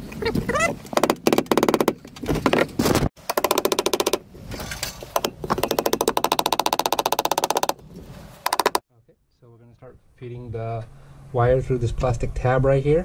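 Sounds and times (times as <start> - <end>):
rapid sharp knocks: 1.0 - 2.6, 3.2 - 4.2, 5.2 - 7.8, 8.4 - 8.8.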